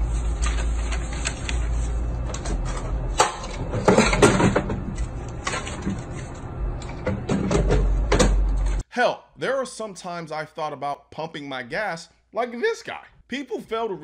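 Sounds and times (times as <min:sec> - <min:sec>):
steady low hum: 0:00.0 - 0:08.8.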